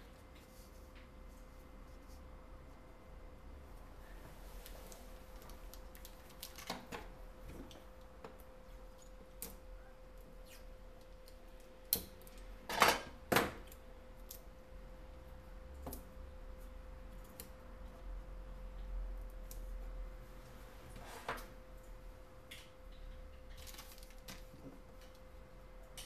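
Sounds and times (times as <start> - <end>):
faint steady hum: 0.0 - 26.0.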